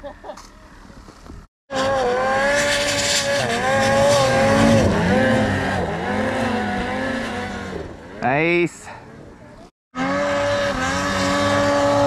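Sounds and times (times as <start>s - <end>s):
snowmobile engine revving: 1.7s - 9.3s, 10.0s - 12.0s.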